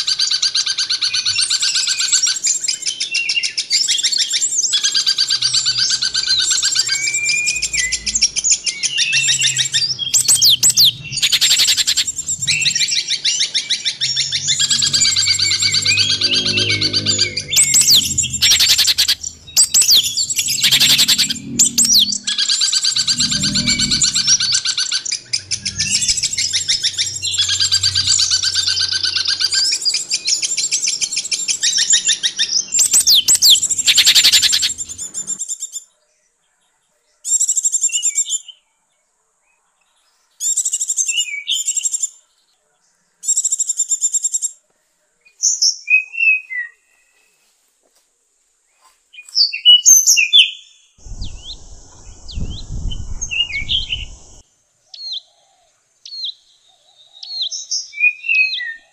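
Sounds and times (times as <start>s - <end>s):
songbird chirps and trills: 4.2s - 35.8s.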